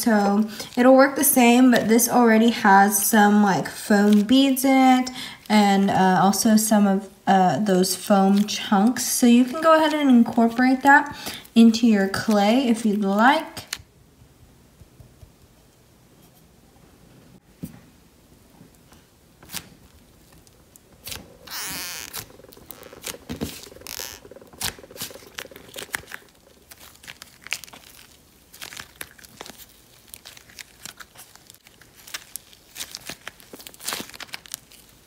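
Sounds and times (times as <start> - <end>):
hands squishing clay slime: 20.3 - 35.0.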